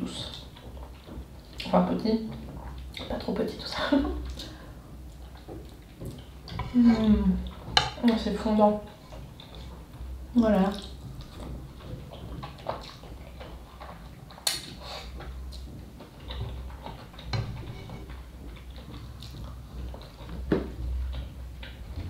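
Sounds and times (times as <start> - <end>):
noodles being slurped and chewed: 9.0 - 22.0.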